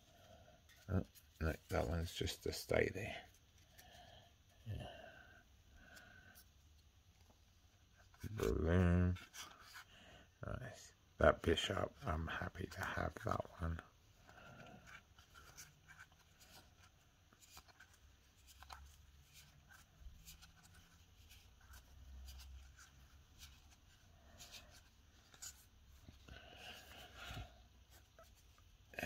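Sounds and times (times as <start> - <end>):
cards sliding and rubbing: 6.0 - 9.9, 12.6 - 28.9.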